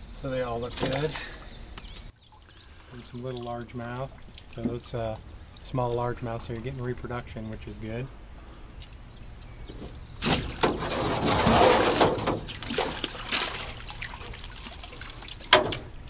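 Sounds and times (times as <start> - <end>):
water splashing in a tub: 0.6 - 6.8, 10.2 - 16.0.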